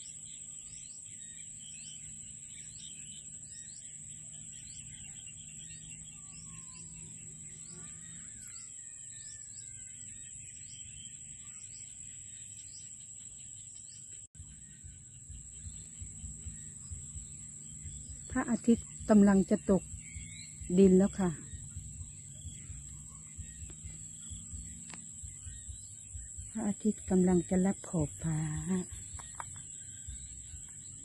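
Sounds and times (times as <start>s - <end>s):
high-pitched insect drone: 0.0s - 13.6s
bird calls: 0.0s - 31.0s
low hum: 14.4s - 31.0s.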